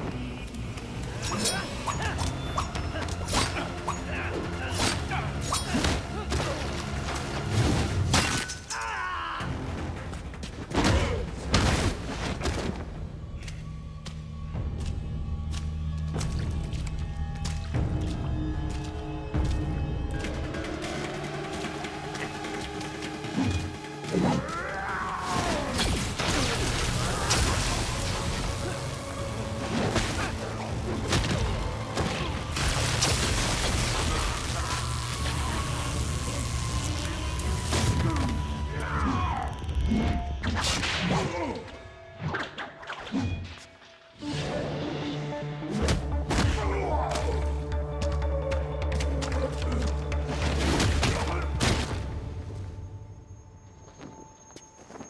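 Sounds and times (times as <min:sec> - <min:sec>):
dramatic film score: 0:00.0 - 0:55.0
low background music: 0:00.0 - 0:55.0
hits and slashes: 0:23.4 - 0:38.4.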